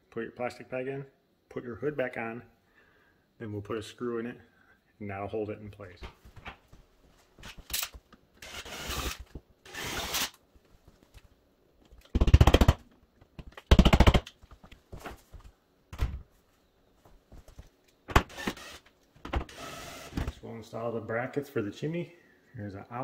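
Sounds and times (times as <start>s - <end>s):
power driver driving screws: 7.7s - 10.4s, 18.1s - 20.3s.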